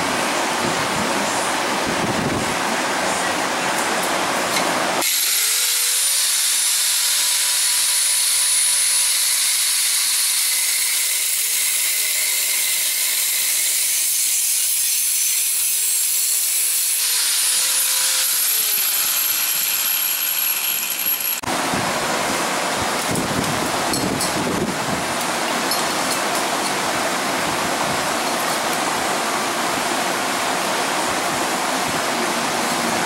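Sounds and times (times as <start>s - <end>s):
angle grinder on steel: 5.0s - 21.5s.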